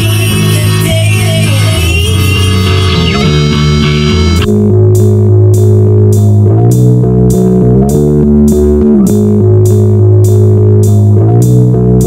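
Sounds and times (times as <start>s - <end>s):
instrumental indie rock: 0.0s - 4.5s.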